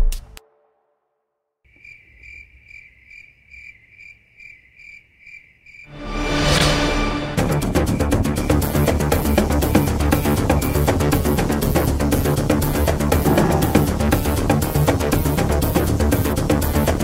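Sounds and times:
crickets chirping: 1.7s - 6.2s, 7.4s - 16.0s
music: 5.9s - 17.0s.

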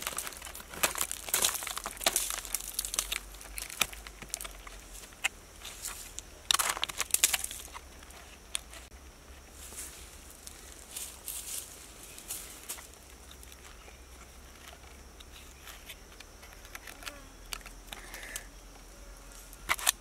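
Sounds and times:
rotten wood crackling and breaking: 0.0s - 8.9s.

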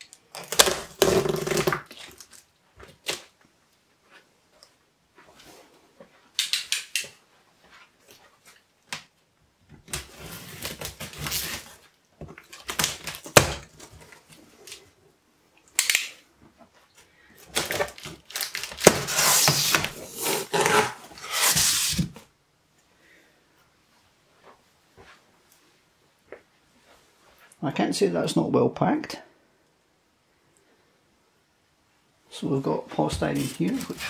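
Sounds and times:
cardboard snapping: 17.5s - 22.0s
cardboard box being opened: 17.6s - 22.2s.

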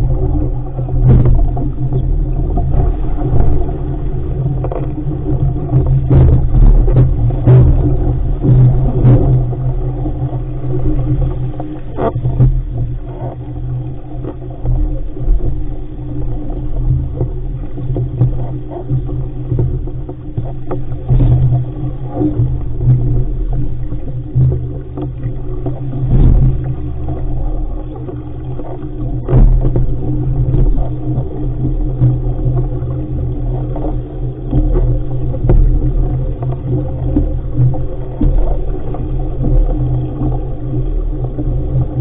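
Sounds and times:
wind buffeting microphone: 0.0s - 14.4s
water splashing on hull: 0.0s - 42.0s.

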